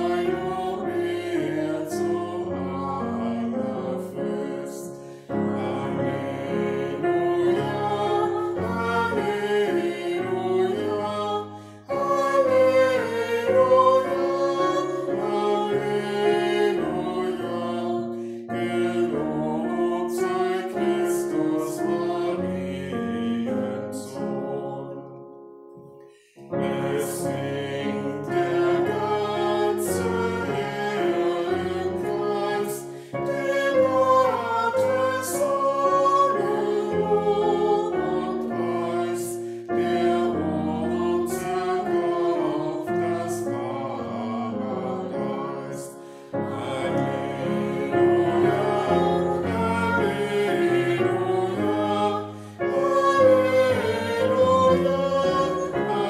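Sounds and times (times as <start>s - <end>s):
choir singing a hymn: 0.0s - 25.4s, 26.2s - 56.0s.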